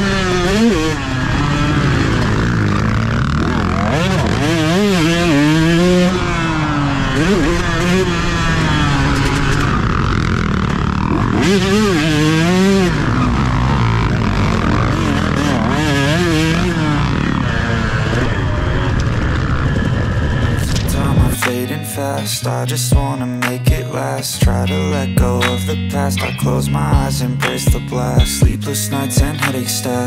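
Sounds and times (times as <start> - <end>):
motorcycle engine revving: 0.0 - 30.0
wind noise on microphone: 17.1 - 21.4.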